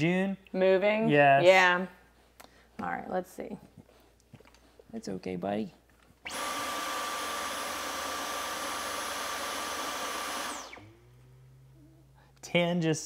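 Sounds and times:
cordless vacuum running: 6.2s - 11.3s
vacuum motor spinning down: 6.2s - 11.8s.

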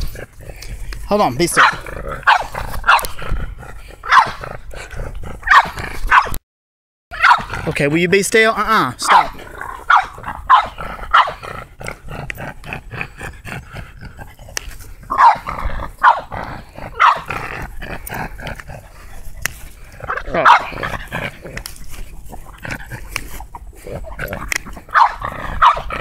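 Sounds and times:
small dog barking: 1.6s - 3.1s, 4.0s - 4.4s, 5.4s - 6.4s, 7.1s - 7.6s, 9.0s - 11.4s, 15.1s - 16.3s, 16.9s - 17.3s, 20.1s - 20.9s, 24.9s - 26.0s.

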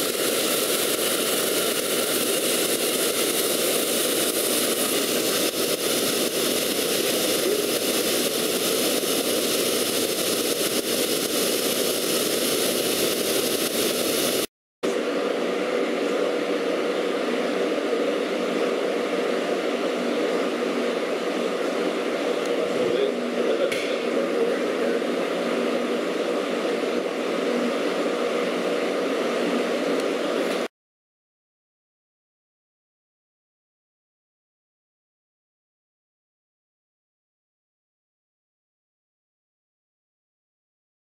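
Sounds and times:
plasma torch hissing: 0.0s - 14.5s.

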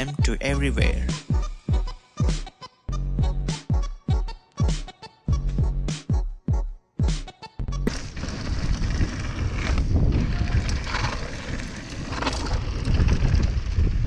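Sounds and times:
bike rolling over dirt: 7.9s - 14.0s
wind rumble on microphone: 7.9s - 14.0s.

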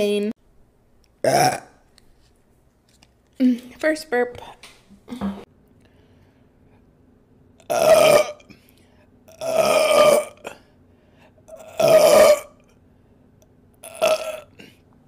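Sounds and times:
woman belching: 1.2s - 1.8s, 7.6s - 8.5s, 9.3s - 10.6s, 11.5s - 12.6s, 13.8s - 14.7s.

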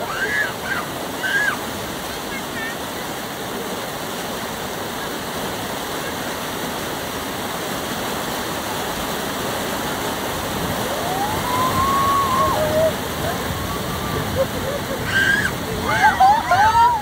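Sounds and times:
water rushing down chute: 0.0s - 17.0s.

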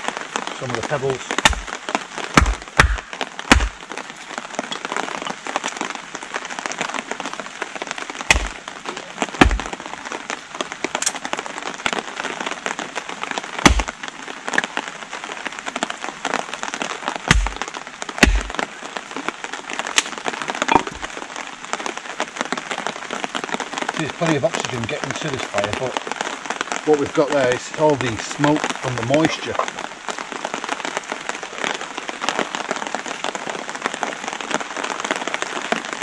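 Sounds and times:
heavy rain hissing: 0.0s - 36.0s
sticks being chopped: 1.4s - 3.8s, 8.3s - 8.6s, 9.4s - 9.7s, 13.6s - 13.9s, 17.3s - 18.7s, 19.9s - 21.1s.

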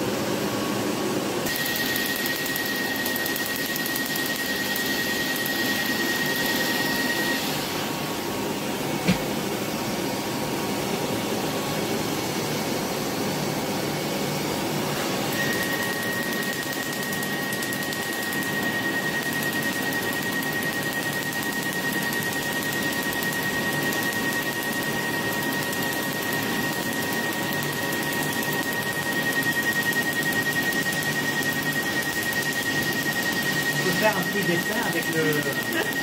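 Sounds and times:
cooling fan running: 0.0s - 36.0s
laser high tone with fast ticking: 1.5s - 7.4s, 15.3s - 36.0s.

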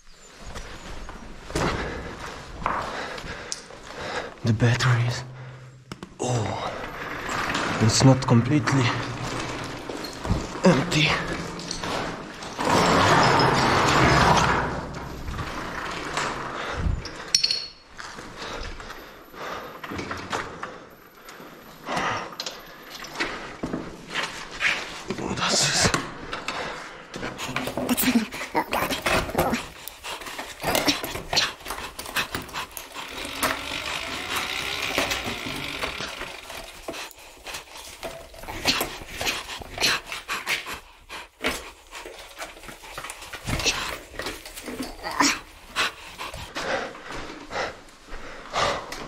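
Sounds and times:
bike scraping over rubble: 6.2s - 17.2s, 26.1s - 39.8s.

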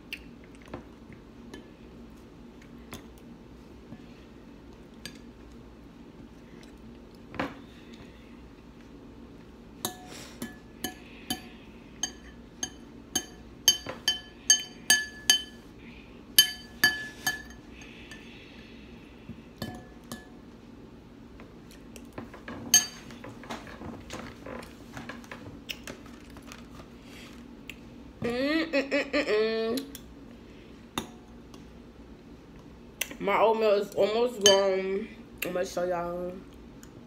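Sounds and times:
spoon clinking against glass bowl: 9.9s - 15.6s, 16.4s - 18.2s, 34.4s - 34.7s.

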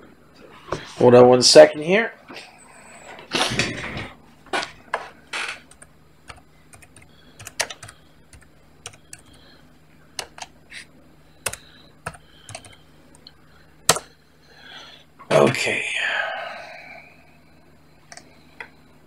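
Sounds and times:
typing on computer keyboard: 5.7s - 9.4s, 10.2s - 10.5s, 11.4s - 12.8s.

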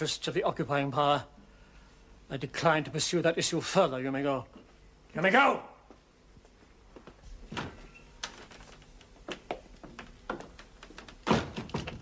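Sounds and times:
footsteps on a hard floor: 5.9s - 12.0s
loud thud: 11.2s - 12.0s.

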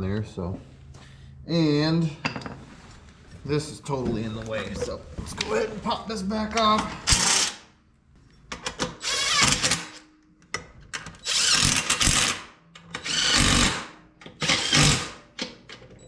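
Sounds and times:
cordless drill bursts: 7.1s - 7.6s, 9.0s - 9.9s, 11.2s - 12.4s, 13.0s - 15.2s.

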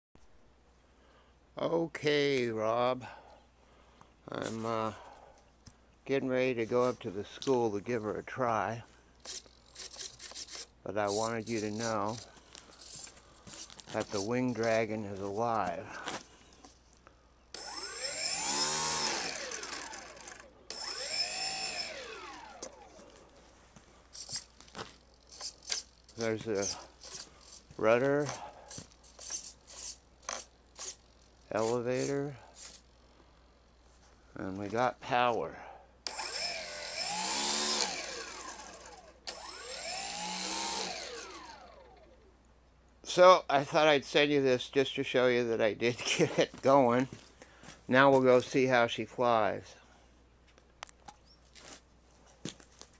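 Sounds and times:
thin high whine: 17.5s - 24.4s, 36.0s - 42.2s
model plane motor whine: 17.6s - 23.4s, 36.1s - 42.3s.

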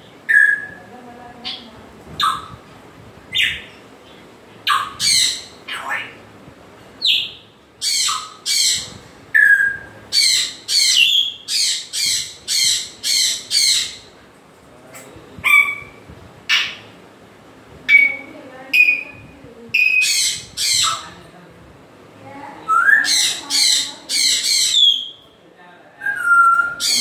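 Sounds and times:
parrot squawking: 2.2s - 2.6s, 4.6s - 6.2s, 7.0s - 14.1s, 15.4s - 16.9s, 19.8s - 21.2s, 22.7s - 25.2s, 26.0s - 27.0s.

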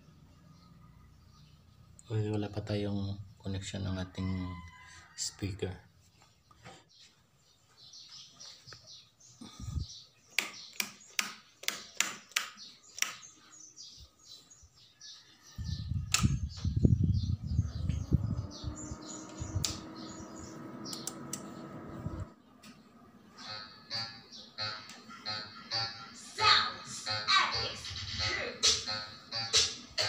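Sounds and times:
small birds chirping: 0.0s - 30.0s
amplifier low rumble: 15.8s - 22.3s
hum rising in pitch: 16.7s - 22.4s
switches clicking: 19.3s - 19.9s, 20.9s - 21.6s.

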